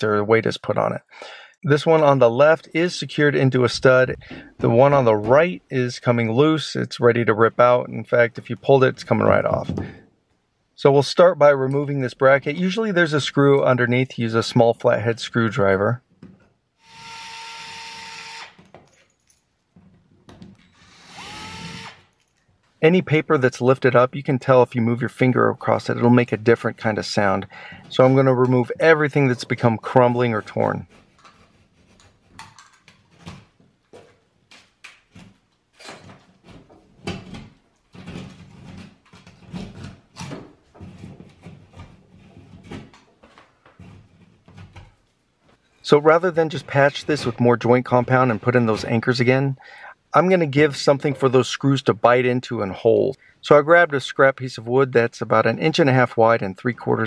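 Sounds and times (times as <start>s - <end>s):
cordless drill whirring: 16.8s - 18.6s, 20.7s - 22.1s
knife scraping drywall: 30.3s - 33.5s.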